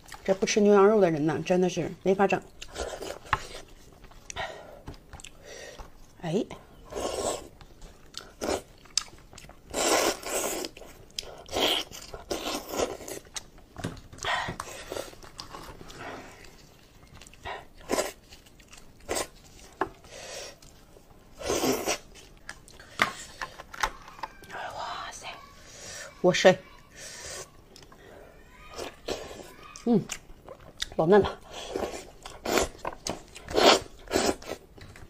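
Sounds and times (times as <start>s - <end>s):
person chewing meat: 2.5s - 6.0s, 6.8s - 24.4s, 28.8s - 35.0s.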